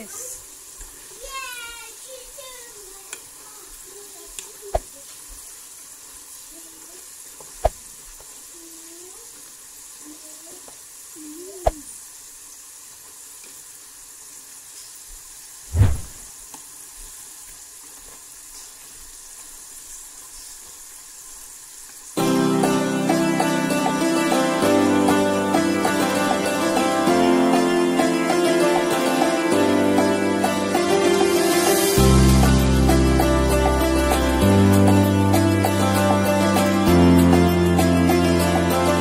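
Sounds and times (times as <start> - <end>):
fries sizzling in hot oil: 0.0 - 39.0
plucked string music: 22.2 - 39.0.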